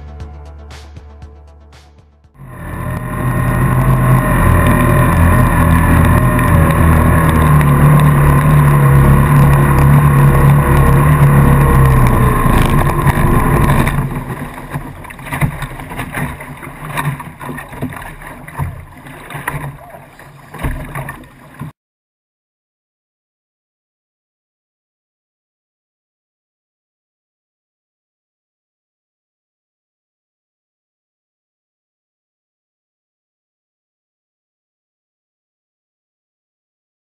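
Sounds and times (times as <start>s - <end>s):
racing boat engine running: 2.3s - 21.8s.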